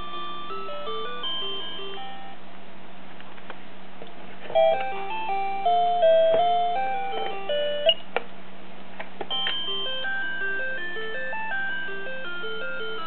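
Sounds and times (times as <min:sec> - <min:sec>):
toy beeping tunes: 0:00.0 - 0:02.4, 0:04.6 - 0:08.0, 0:09.3 - 0:13.0.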